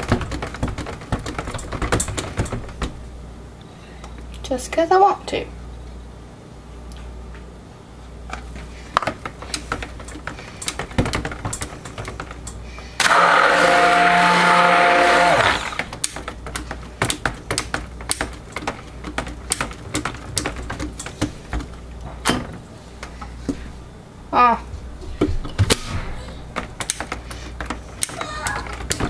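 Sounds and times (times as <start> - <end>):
stick blender whirring: 12.9 - 16.2.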